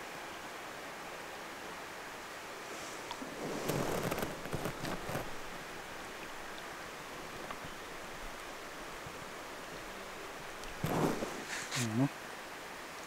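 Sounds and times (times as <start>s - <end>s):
outdoor background hiss: 0.0s - 13.0s
brief rustle: 2.7s - 5.5s, 10.6s - 12.0s.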